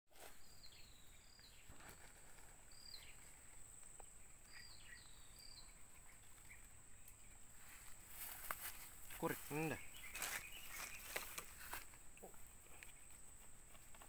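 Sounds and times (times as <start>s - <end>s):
bird calling: 7.8s - 13.4s.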